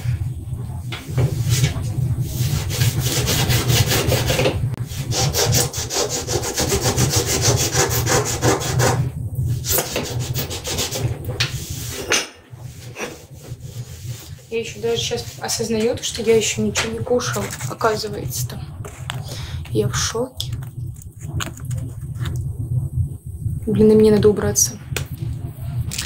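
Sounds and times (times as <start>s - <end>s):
scrubbing kitchen counter: 9.6s - 18.0s.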